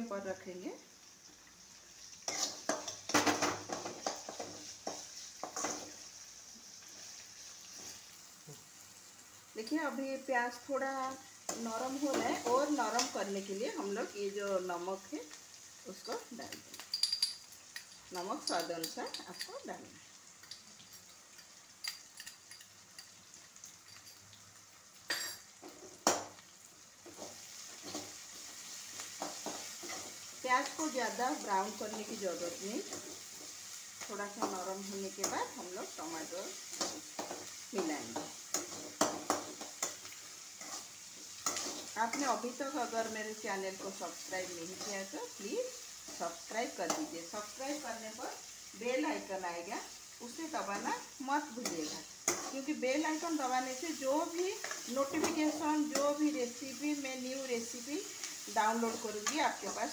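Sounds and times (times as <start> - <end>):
onions sizzling: 0.0 - 59.9
spatula scraping metal pan: 2.3 - 3.0.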